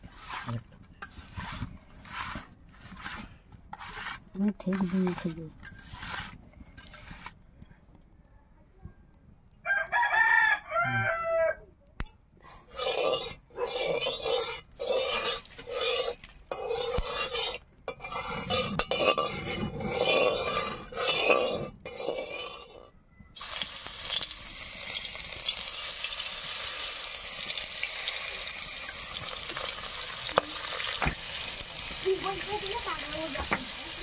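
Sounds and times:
metal spatula scraping wok: 0:00.0 - 0:07.4, 0:12.5 - 0:34.0
fish sizzling in hot oil: 0:12.7 - 0:22.7, 0:23.4 - 0:34.0.

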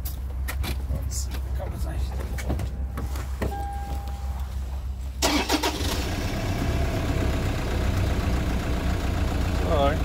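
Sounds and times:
diesel engine starting and idling: 0:05.0 - 0:10.0.

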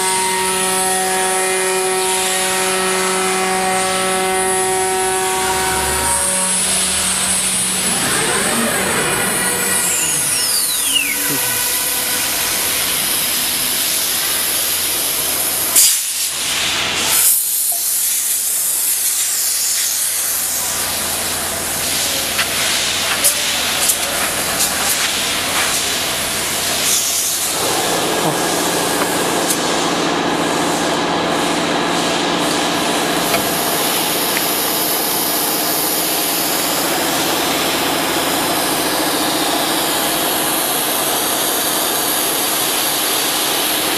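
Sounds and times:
compressed air hissing: 0:02.0 - 0:31.6, 0:32.4 - 0:43.9.

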